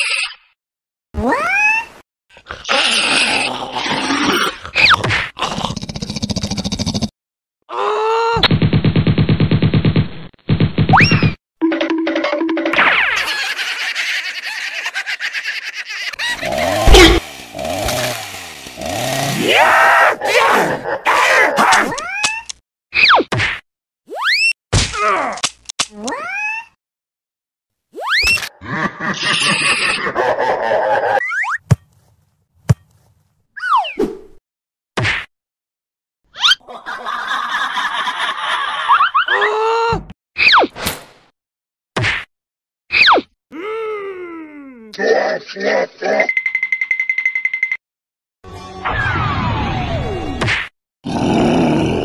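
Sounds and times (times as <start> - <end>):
cartoon chainsaw revving: 16.1 - 20.8, 51.0 - 52.0.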